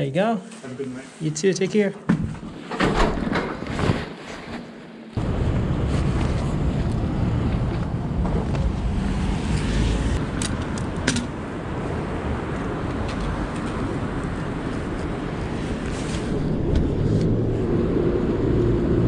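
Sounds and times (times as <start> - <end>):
city traffic: 5.1 - 19.0.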